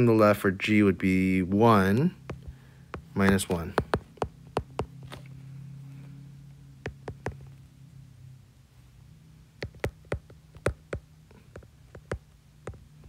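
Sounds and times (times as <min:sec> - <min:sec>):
low hum: 0:00.0 - 0:13.0
stylus tapping on glass screen: 0:02.2 - 0:05.0, 0:06.8 - 0:07.5, 0:09.6 - 0:12.8.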